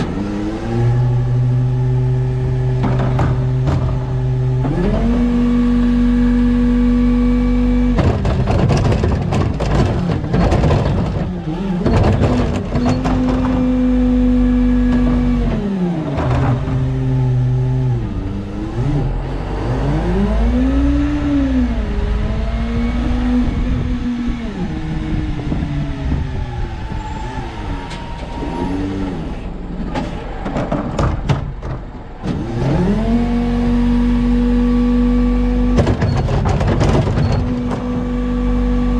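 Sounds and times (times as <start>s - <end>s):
garbage truck engine: 0.0s - 38.9s
clattering cart dumping: 2.6s - 5.5s, 7.9s - 19.2s, 35.6s - 38.2s.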